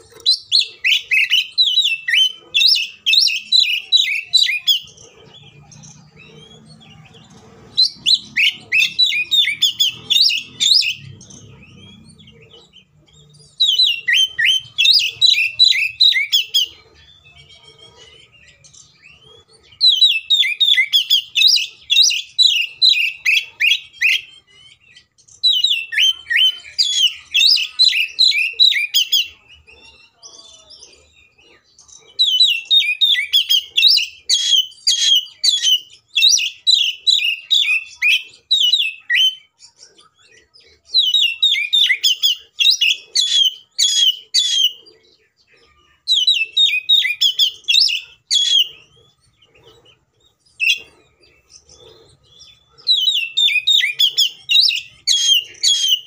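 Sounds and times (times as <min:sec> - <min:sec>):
bird rapid repeated chirping: 0:00.0 - 0:56.0.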